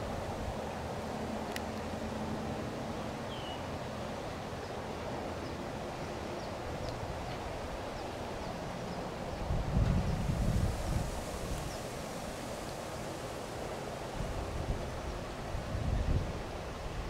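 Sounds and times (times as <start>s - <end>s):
outdoor background noise: 0.0s - 17.0s
wind buffeting microphone: 6.7s - 17.0s.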